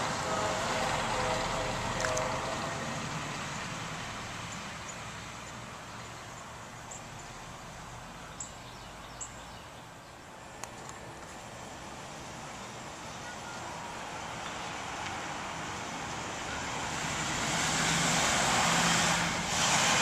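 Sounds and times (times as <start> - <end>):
birds chirping: 8.1 - 10.4.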